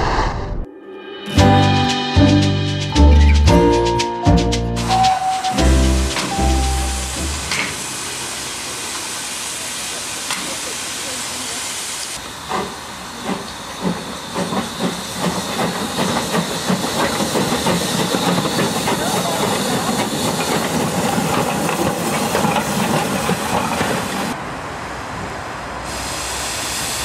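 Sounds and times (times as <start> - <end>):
steam locomotive exhaust chuffs: 4.6 - 24.4
steam hissing: 4.8 - 24.4, 25.8 - 27.0.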